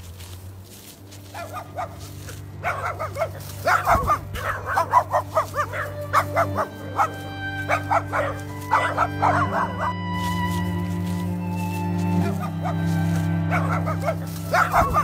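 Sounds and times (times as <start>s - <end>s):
steady low hum: 0.0s - 15.0s
puppy yelping and barking: 2.6s - 10.0s, 12.2s - 15.0s.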